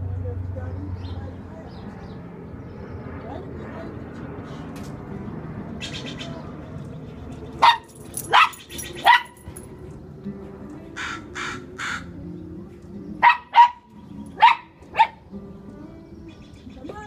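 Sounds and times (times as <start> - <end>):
small dog barking: 7.6 - 9.4, 13.2 - 15.2.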